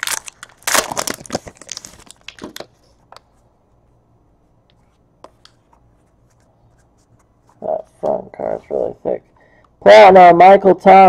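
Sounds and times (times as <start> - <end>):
foil wrapper crinkling and tearing: 0.0 - 2.7.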